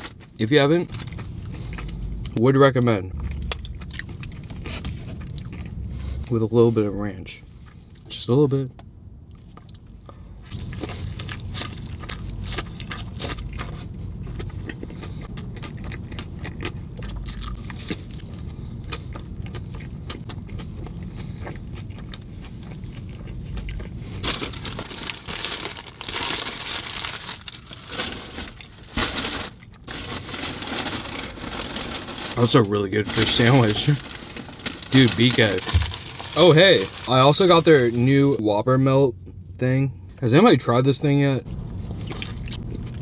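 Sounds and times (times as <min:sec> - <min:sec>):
biting and chewing fried sandwich: 0:03.2 - 0:06.2, 0:09.3 - 0:38.2, 0:41.8 - 0:43.0.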